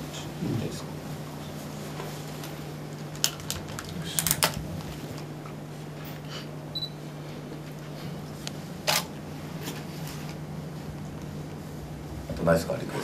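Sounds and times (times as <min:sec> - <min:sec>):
steady low hum: 0:00.0 - 0:13.0
camera shutters clicking: 0:08.8 - 0:09.1.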